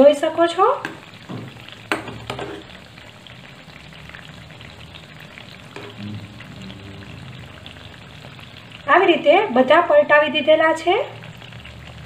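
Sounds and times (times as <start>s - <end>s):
dumplings sizzling in hot oil: 0.0s - 12.0s
spoon stirring in oil: 0.7s - 3.1s, 5.0s - 6.0s.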